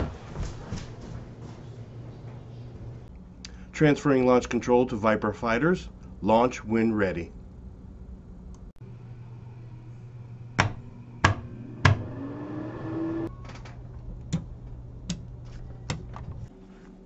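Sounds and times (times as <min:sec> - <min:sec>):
steady low hum: 0:00.0 - 0:17.0
faint rising whine: 0:07.8 - 0:13.8
wall switches clicking: 0:14.3 - 0:15.3.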